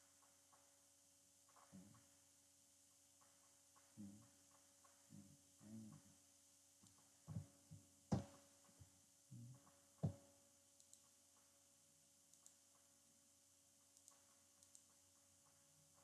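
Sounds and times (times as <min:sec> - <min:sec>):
low electrical hum: 0:00.0 - 0:16.0
faint knocks and thumps: 0:06.8 - 0:10.3.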